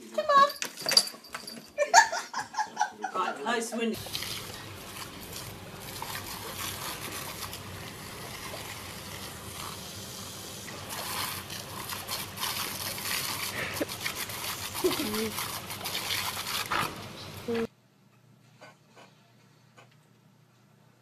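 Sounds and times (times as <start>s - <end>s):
hose water spraying and splattering: 4.0s - 17.7s.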